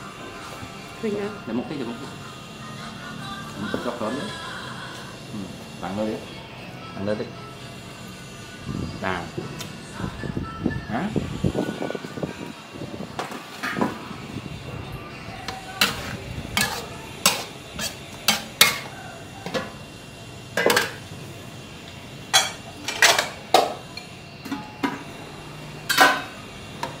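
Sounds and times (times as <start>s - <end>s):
metal wok and lid clattering: 13.2s - 14.0s, 15.8s - 19.8s, 20.6s - 21.1s, 22.3s - 23.8s, 24.5s - 25.1s, 25.8s - 27.0s.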